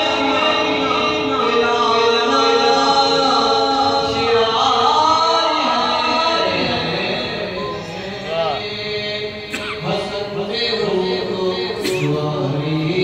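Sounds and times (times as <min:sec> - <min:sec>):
man singing into a microphone: 0:00.0 - 0:13.0.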